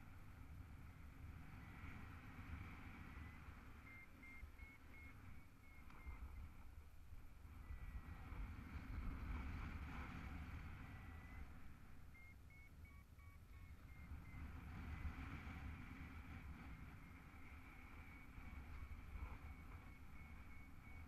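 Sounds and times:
wind rumbling on microphone: 0.0 - 21.0
faint high beeps: 2.8 - 6.9, 10.3 - 21.0.

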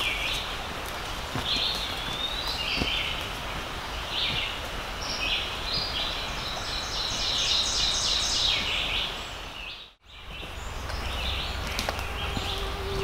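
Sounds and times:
birds calling: 0.0 - 13.0
low outdoor rumble: 10.1 - 13.0.

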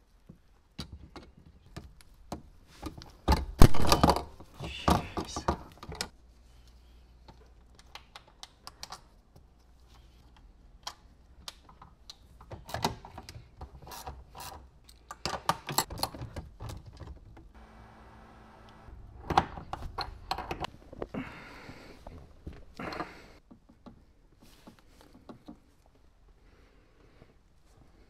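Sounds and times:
brief steady whir: 17.6 - 19.6
hand tools and metal parts rattling: 19.2 - 21.0.

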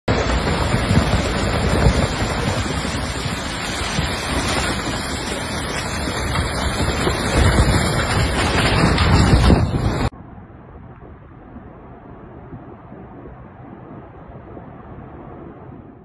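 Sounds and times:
landslide rushing noise: 0.1 - 10.1
wind on microphone: 0.1 - 16.0.

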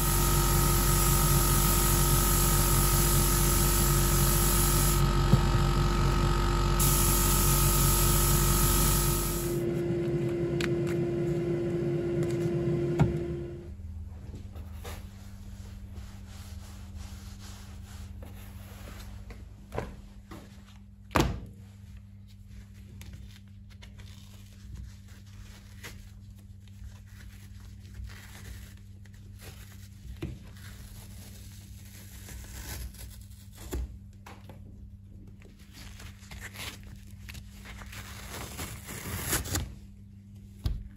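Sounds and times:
steady low hum: 0.0 - 19.6
rubbing and handling noise: 22.0 - 33.7.

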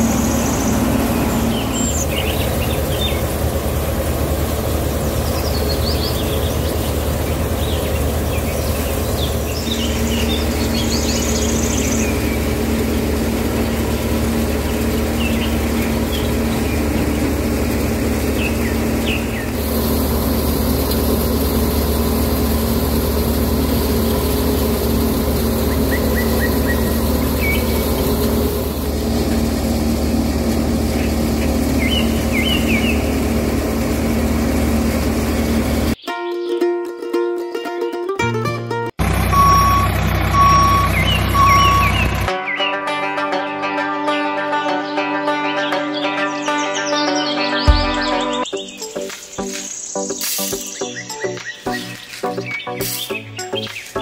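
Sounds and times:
bird chirps: 0.0 - 3.4, 5.0 - 17.0, 18.3 - 19.6, 25.6 - 28.2, 30.9 - 33.2, 39.4 - 42.9, 44.9 - 54.0.

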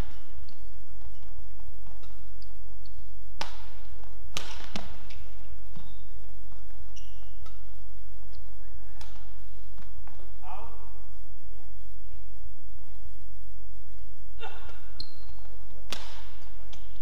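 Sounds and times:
court shoes squeaking: 0.0 - 13.2, 13.8 - 17.0
steady low hum: 0.0 - 17.0
racket striking shuttlecock: 3.4 - 5.9, 6.5 - 7.8, 15.8 - 17.0.

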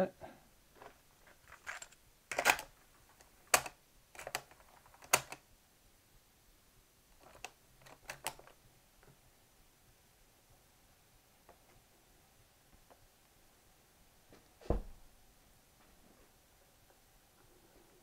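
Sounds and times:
cassette recorder clicks and clacks: 1.5 - 5.4, 7.2 - 8.6.

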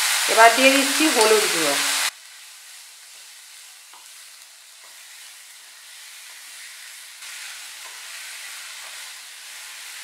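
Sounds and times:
spatula scraping wok: 0.0 - 10.0
vegetables sizzling in oil: 0.0 - 10.0.

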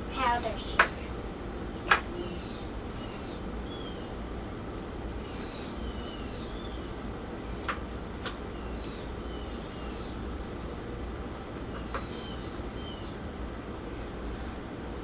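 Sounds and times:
small birds chirping: 1.8 - 4.3, 5.1 - 7.7, 8.4 - 10.3, 11.6 - 13.3.

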